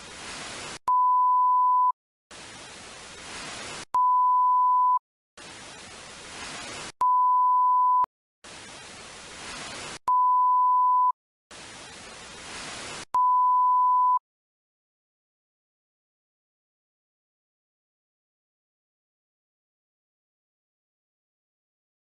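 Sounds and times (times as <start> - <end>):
television static hiss: 0.0 - 0.8, 2.3 - 3.9, 5.4 - 7.0, 8.5 - 10.0, 11.5 - 13.1.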